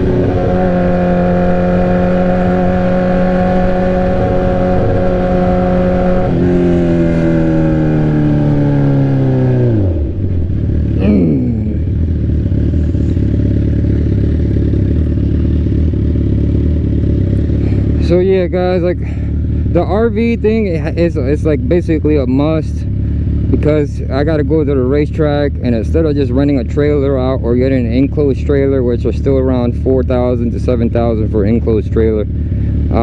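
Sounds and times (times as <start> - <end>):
motorcycle engine idling: 0.0 - 33.0
motorcycle engine revving: 0.0 - 33.0.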